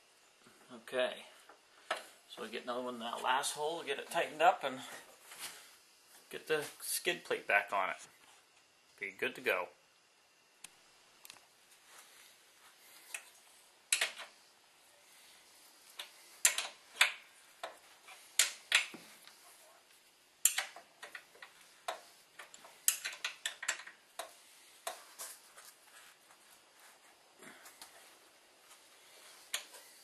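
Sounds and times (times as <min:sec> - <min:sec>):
wrench clicking on a bolt: 0:20.4 - 0:21.2, 0:22.9 - 0:24.3.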